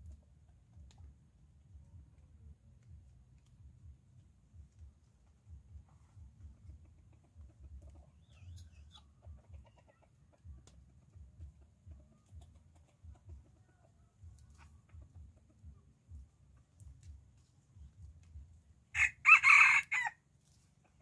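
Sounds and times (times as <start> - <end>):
chicken clucking and squawking: 5.2 - 16.7.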